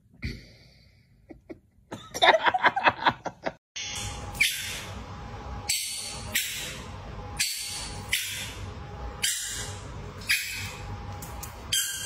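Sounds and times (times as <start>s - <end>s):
person laughing: 1.3s - 3.6s.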